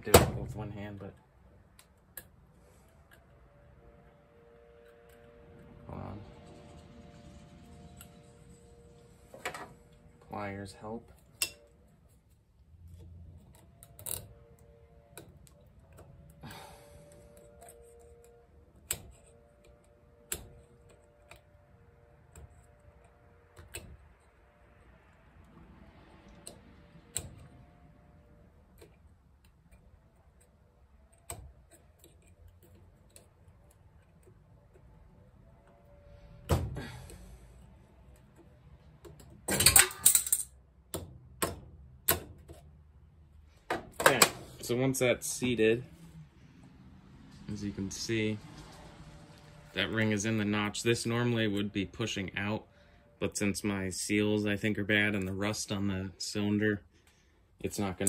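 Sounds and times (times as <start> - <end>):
small metallic clicks and scrapes: 11.1 - 16.4, 17.0 - 36.0.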